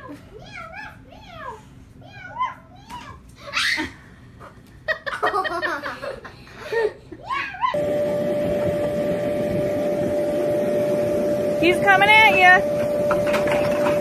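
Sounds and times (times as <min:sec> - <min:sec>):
people laughing: 0:04.9 - 0:07.0
steady rushing noise with hum: 0:07.8 - 0:13.5.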